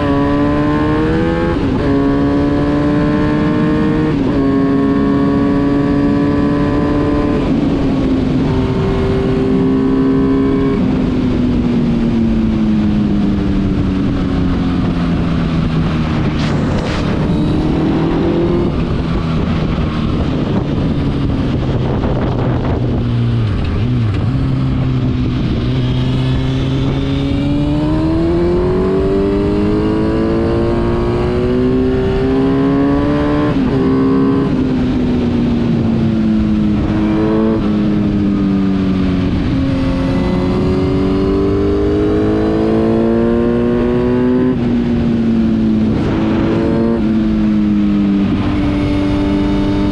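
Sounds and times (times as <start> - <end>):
wind rushing over microphone: 0.0 - 49.9.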